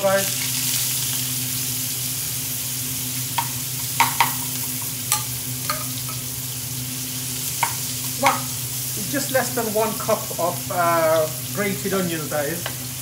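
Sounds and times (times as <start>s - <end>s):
onion sizzling in oil: 0.0s - 13.0s
metal spoon clinking on pan: 3.4s - 6.3s, 7.6s - 8.5s.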